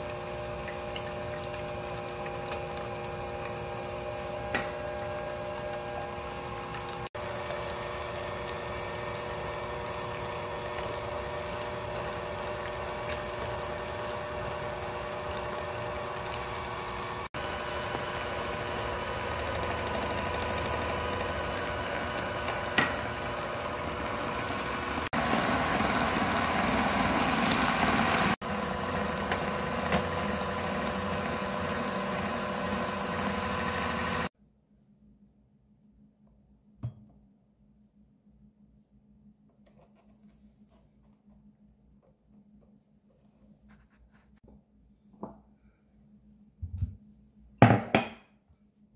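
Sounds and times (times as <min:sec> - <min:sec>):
electric hand mixer whipping: 0:00.0 - 0:34.3.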